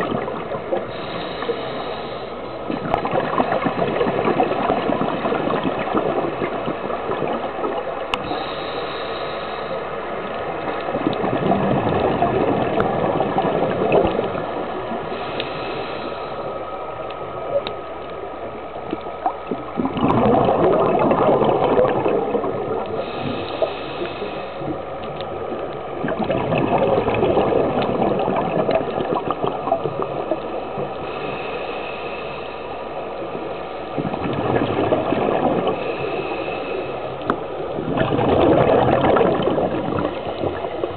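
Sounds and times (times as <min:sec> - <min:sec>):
exhaled air bubbling underwater: 0:00.0 - 0:40.9
regulator inhale hiss: 0:00.8 - 0:02.8, 0:08.1 - 0:10.4, 0:15.0 - 0:17.4, 0:23.0 - 0:25.0, 0:30.9 - 0:33.9, 0:35.7 - 0:37.7
faint clicks: 0:07.6 - 0:08.4, 0:09.8 - 0:11.3, 0:15.3 - 0:15.6, 0:17.0 - 0:19.8, 0:22.8 - 0:26.4, 0:36.8 - 0:37.7.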